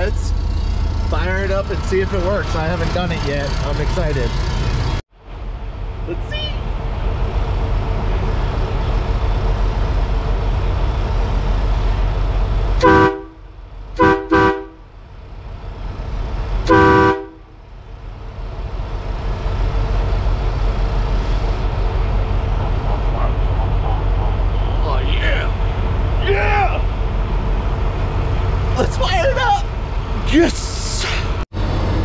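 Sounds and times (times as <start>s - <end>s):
air horn blasts: 12.8s - 14.9s, 16.6s - 17.6s
steady low rumble: 17.4s - 32.0s.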